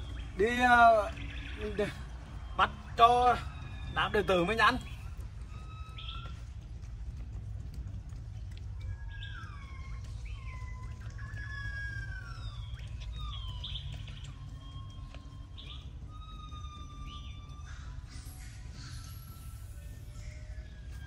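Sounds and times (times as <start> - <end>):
monkeys giving whistle-like coos: 8.6 - 21.0.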